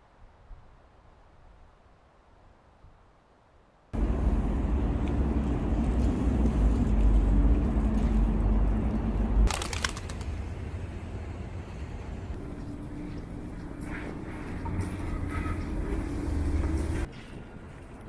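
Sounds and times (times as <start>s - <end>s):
traffic rumble: 4.0s - 18.0s.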